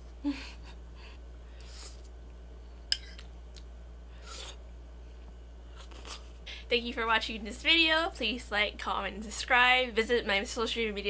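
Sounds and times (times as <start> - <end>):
steady low hum: 0.0 - 11.0
soft mouth eating noises: 3.1 - 4.7, 5.7 - 6.4.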